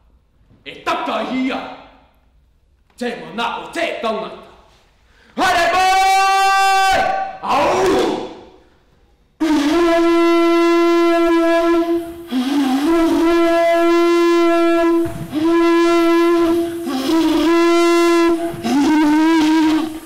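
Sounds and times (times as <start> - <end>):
wind instrument loud note: 9.4 - 20.0.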